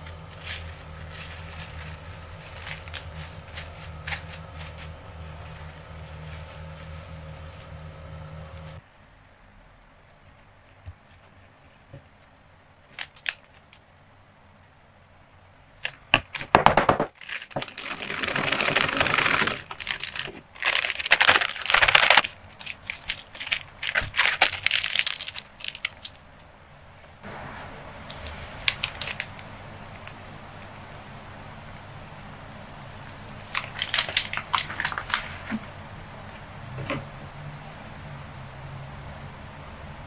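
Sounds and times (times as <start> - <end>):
plastic piping bag crinkling: 0.0 - 8.8, 12.8 - 13.8, 15.8 - 26.4, 28.1 - 30.2, 32.8 - 35.7.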